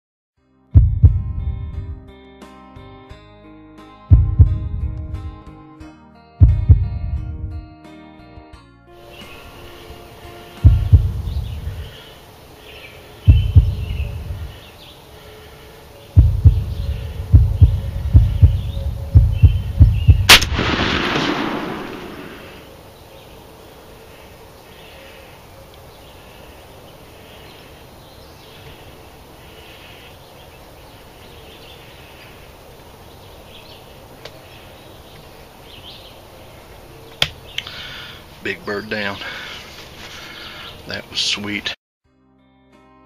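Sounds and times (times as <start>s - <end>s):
low thumps and rumble: 0.8s - 2.0s, 4.1s - 5.4s, 6.4s - 7.6s, 10.6s - 11.8s, 13.3s - 14.5s, 16.2s - 21.0s
faint bird calls: 10.7s - 20.3s, 21.7s - 38.3s
shotgun blast with echo: 20.3s - 22.7s.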